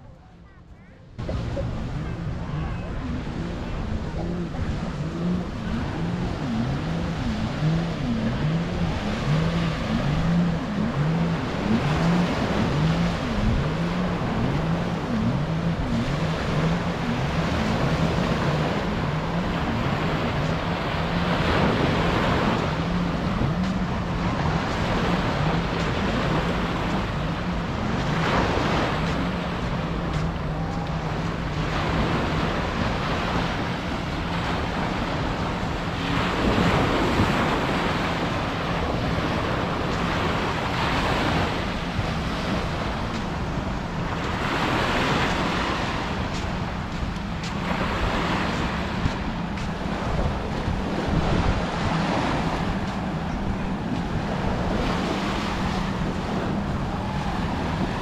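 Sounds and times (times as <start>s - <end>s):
low engine drone: 0.0s - 58.0s
waves washing on sand: 1.2s - 58.0s.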